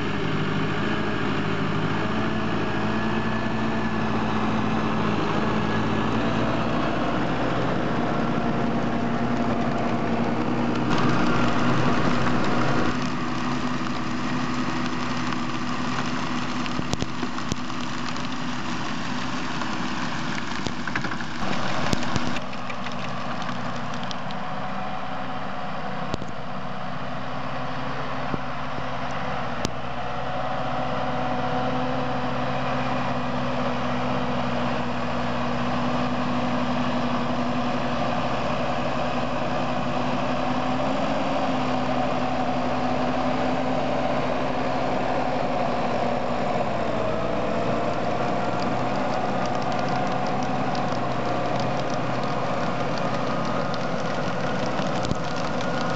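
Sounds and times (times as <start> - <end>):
manure spreader spreading: 0.0 - 26.4, 29.0 - 55.9
tractor diesel engine running: 0.0 - 55.9.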